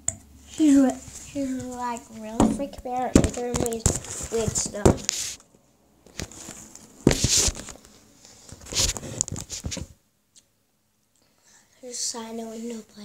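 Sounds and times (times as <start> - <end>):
rustling on microphone: 0.5 - 5.4, 6.1 - 10.0.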